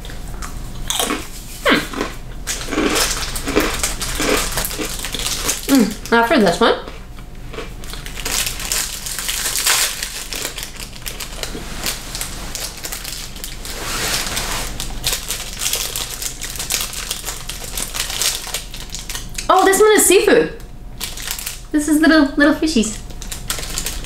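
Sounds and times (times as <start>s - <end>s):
plastic wrapper crinkling: 2.5s - 6.2s, 7.8s - 19.7s, 21.0s - 21.7s, 23.0s - 24.0s.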